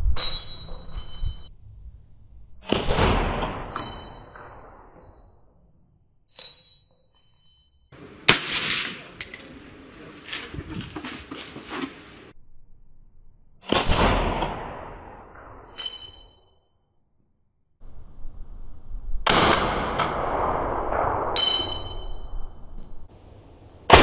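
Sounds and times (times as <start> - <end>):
suppressed gunshots: 8.3 - 9.1, 13.6 - 15.0.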